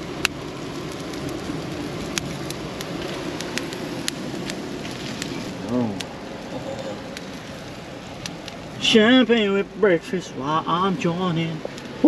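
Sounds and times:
campfire crackling: 0:00.0 - 0:12.0
fire hissing: 0:00.0 - 0:12.0
fire popping: 0:00.0 - 0:12.0.

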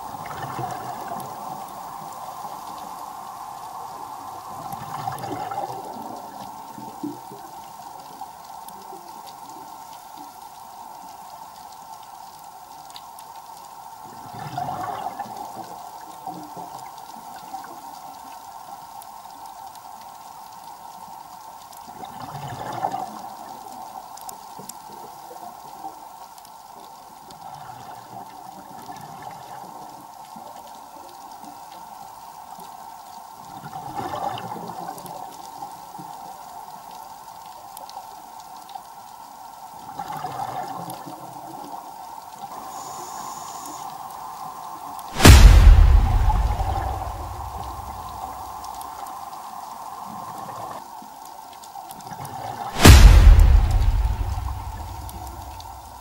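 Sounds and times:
steady hum: 0:45.2 - 0:48.3.

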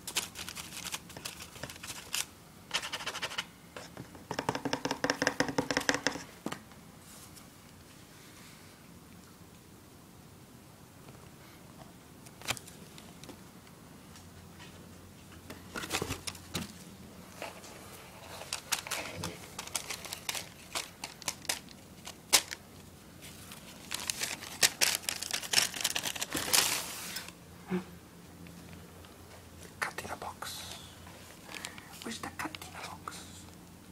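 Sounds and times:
tissue paper rustling and crinkling: 0:00.0 - 0:02.3, 0:17.4 - 0:22.6, 0:23.2 - 0:27.3.

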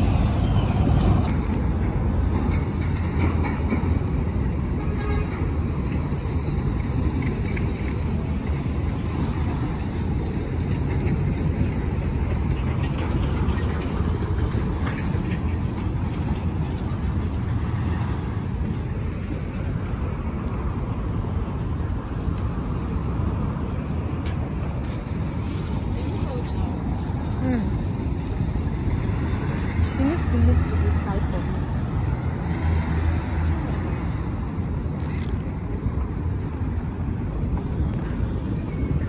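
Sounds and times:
road traffic rumble: 0:00.0 - 0:39.0.

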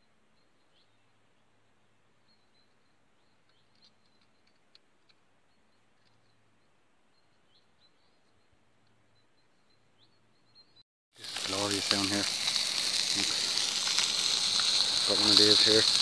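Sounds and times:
faint small birds chirping: 0:00.0 - 0:10.8.

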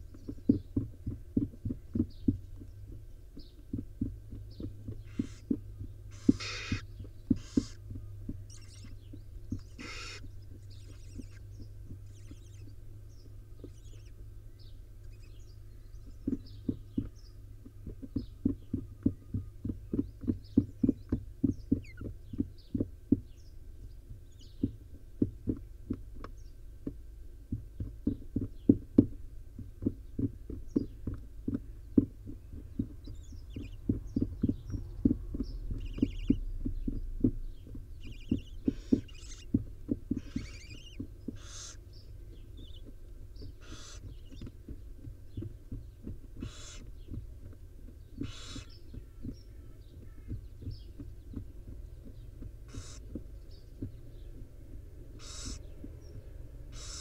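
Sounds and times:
owl shuffling soft thumps: 0:04.6 - 0:14.2, 0:32.8 - 0:41.8
owl nestlings hissing: 0:05.0 - 0:07.8, 0:08.5 - 0:09.0, 0:09.6 - 0:11.5, 0:38.0 - 0:39.5, 0:40.2 - 0:41.8, 0:43.6 - 0:44.2, 0:46.4 - 0:46.9, 0:48.2 - 0:48.8, 0:52.7 - 0:53.0, 0:55.2 - 0:55.7, 0:56.7 - 0:57.0.

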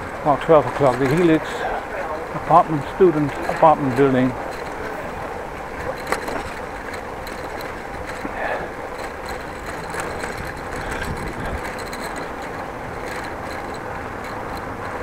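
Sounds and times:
bicycle tyres rumbling on bricks: 0:00.0 - 0:15.0
bike rattling: 0:00.0 - 0:15.0.

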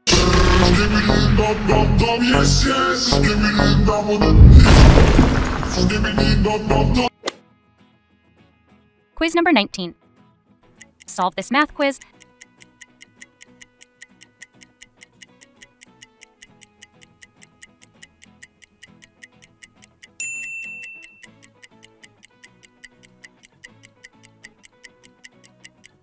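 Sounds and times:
clock ticking: 0:10.8 - 0:26.0
high bell ding: 0:20.2 - 0:21.2.

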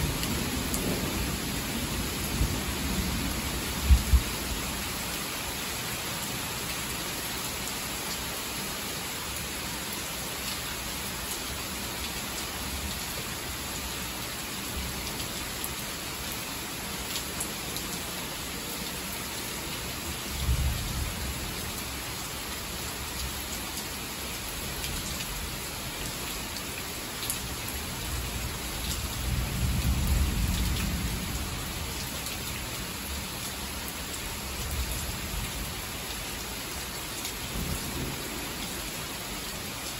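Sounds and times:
heavy rain falling: 0:00.0 - 0:39.9.

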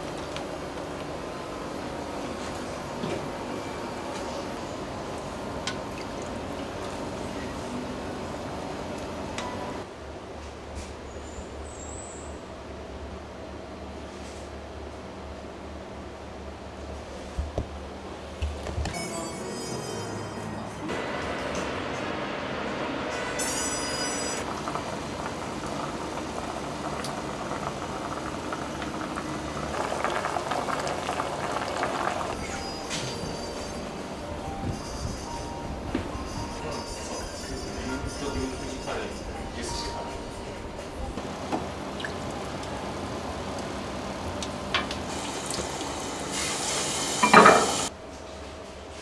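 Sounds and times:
broth bubbling in a pot: 0:24.4 - 0:32.9, 0:41.6 - 0:47.9
dishes clinking: 0:47.2 - 0:47.9.

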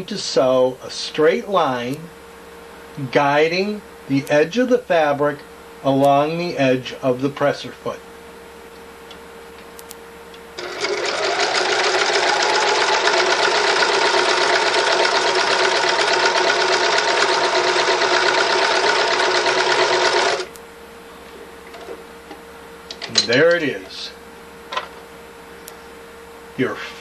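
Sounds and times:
sewing machine stitching: 0:10.6 - 0:20.5.

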